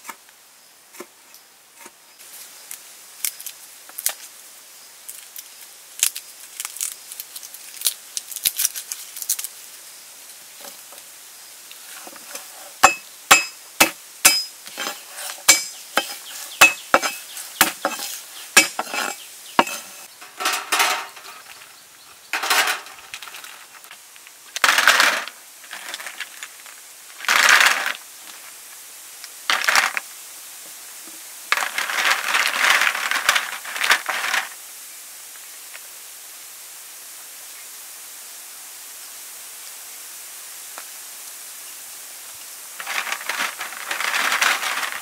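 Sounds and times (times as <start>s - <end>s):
snail shells clinking on metal tray: 12.8s - 21.6s, 22.4s - 23.5s.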